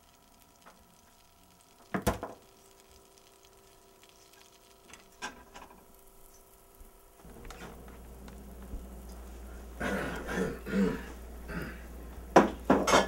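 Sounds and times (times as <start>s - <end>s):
faint steady hum: 0.0s - 13.0s
kitchen utensils clattering: 12.4s - 13.0s.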